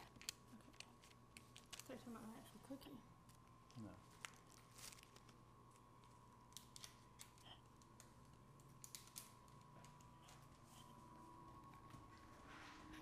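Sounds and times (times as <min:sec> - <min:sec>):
plastic wrapper crinkling: 0:00.0 - 0:02.1, 0:03.3 - 0:10.1
faint steady whine: 0:00.0 - 0:13.0.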